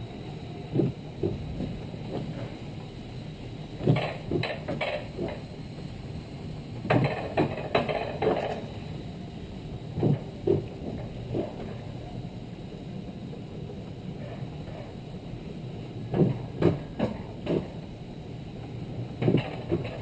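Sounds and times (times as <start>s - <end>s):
bobsled rolling rumble: 0.0s - 20.0s
metallic clacks and knocks: 6.9s - 8.7s, 19.2s - 20.0s.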